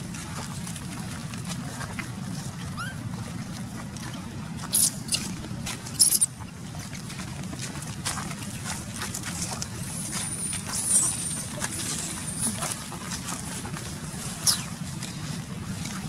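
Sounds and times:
thin high squeaks: 5.9s - 6.3s.

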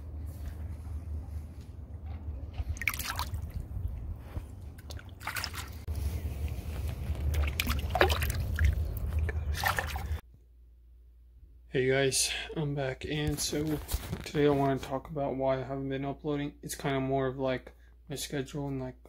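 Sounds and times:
steady low rumble: 0.0s - 13.6s
water splashing and dripping: 2.5s - 10.2s.

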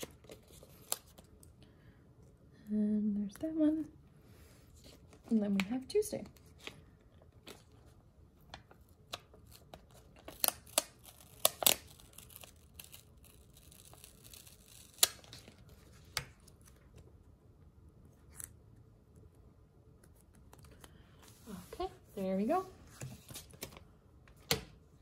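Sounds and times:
paper stickers peeling and crackling: 9.1s - 16.8s.

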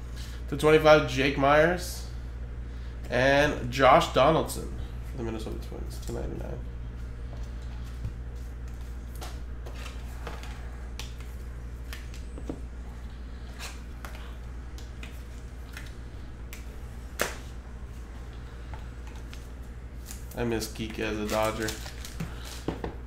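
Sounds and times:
low steady hum: 0.0s - 23.0s
soft plastic crinkling: 21.0s - 22.7s.

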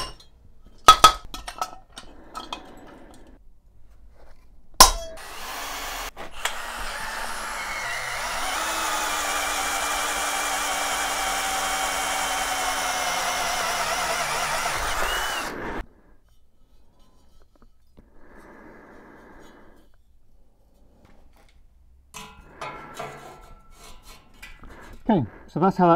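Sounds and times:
drill boring through steel tube: 5.1s - 15.9s.

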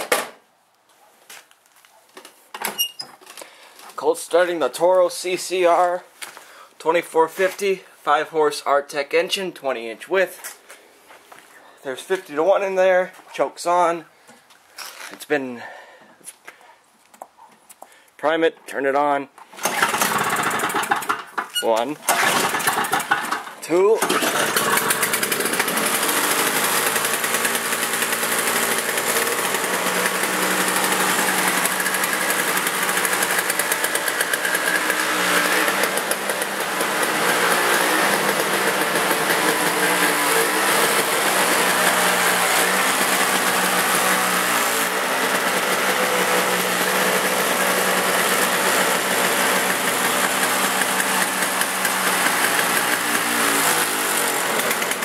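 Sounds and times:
two-stroke engine running: 19.6s - 21.5s, 22.1s - 55.0s.

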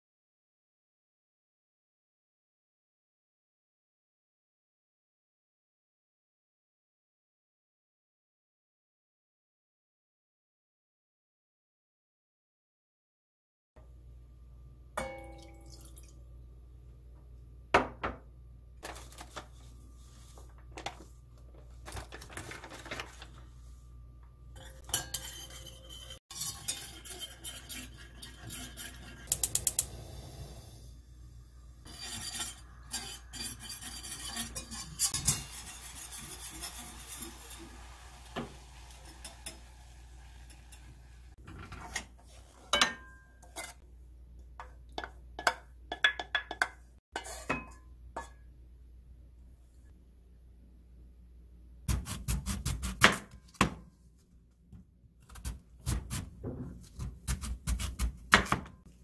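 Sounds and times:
whisk clinking against metal pot: 24.6s - 29.8s, 31.9s - 37.8s, 45.0s - 48.3s
utensils knocking on pot: 45.0s - 48.3s.

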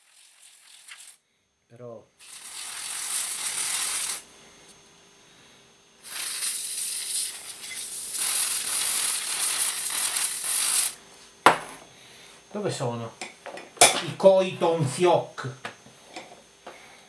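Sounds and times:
aerosol spray can hissing: 0.0s - 1.2s, 2.2s - 4.3s, 6.0s - 11.0s.

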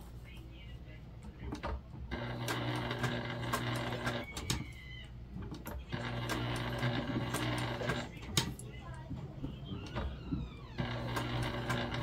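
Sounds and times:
electric sewing machine stitching: 2.1s - 4.5s, 5.9s - 8.2s, 9.9s - 12.0s.

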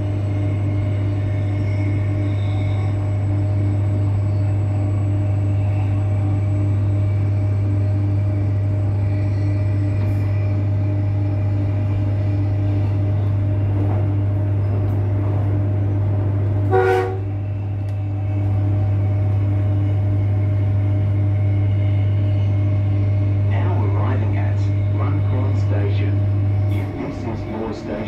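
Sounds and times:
train interior hum: 0.0s - 28.0s
train horn blast: 16.6s - 17.4s.

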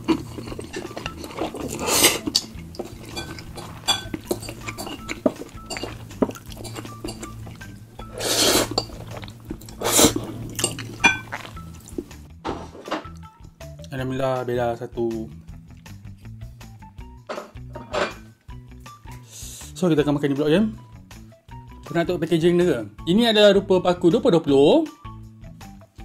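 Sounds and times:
loud noodle slurps: 0.0s - 5.2s, 8.0s - 12.0s
fork clinking and scraping on plate: 0.0s - 11.5s, 17.3s - 18.3s.

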